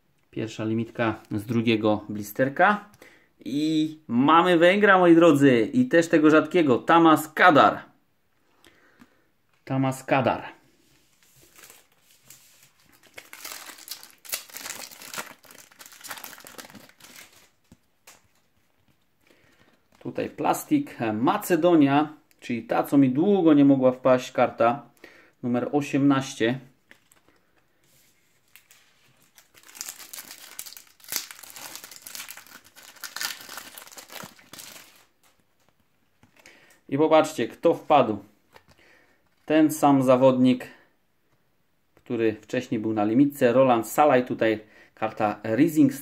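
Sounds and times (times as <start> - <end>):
foil packet crinkling and tearing: 11.4 - 18.3, 28.4 - 35.4.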